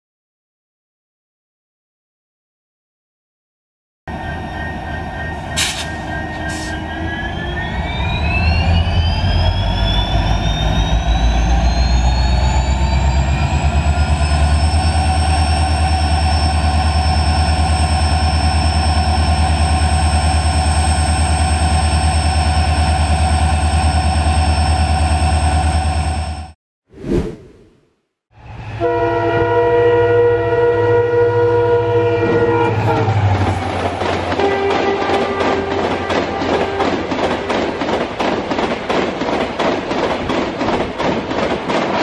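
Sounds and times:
train low rumble: 4.1 - 26.5, 28.4 - 42.0
locomotive whine rising in pitch: 4.1 - 26.6.

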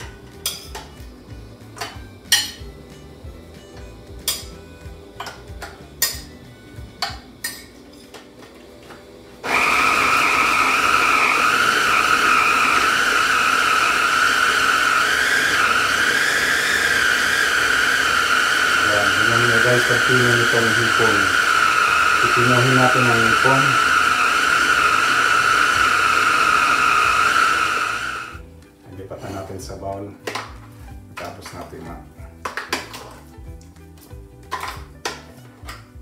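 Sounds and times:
food chopper motor whining: 8.8 - 28.5.

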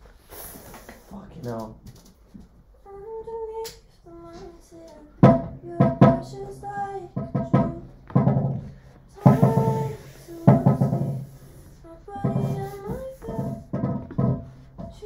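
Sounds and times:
acoustic chords strummed: 5.2 - 15.0.

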